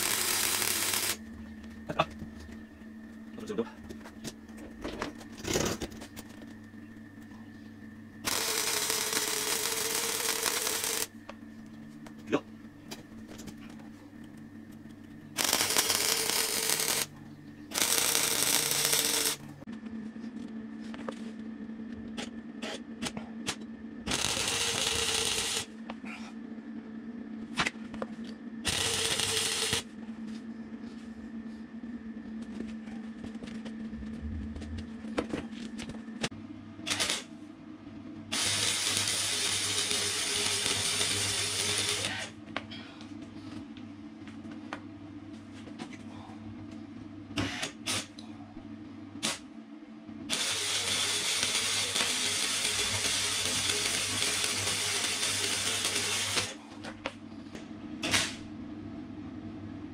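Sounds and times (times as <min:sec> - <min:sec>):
welder arc crackling: 0:00.0 - 0:01.2, 0:08.2 - 0:11.1, 0:15.4 - 0:17.1, 0:17.7 - 0:19.6, 0:24.1 - 0:25.7, 0:28.7 - 0:29.8, 0:36.9 - 0:37.3, 0:38.3 - 0:42.3, 0:50.3 - 0:56.6
steady hum: 0:00.0 - 0:59.9.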